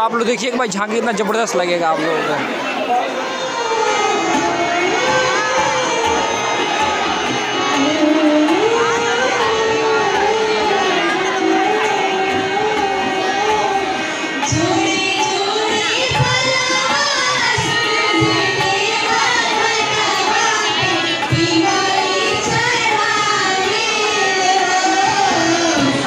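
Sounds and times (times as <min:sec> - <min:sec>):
girl singing into a microphone: 0:07.8 - 0:26.0.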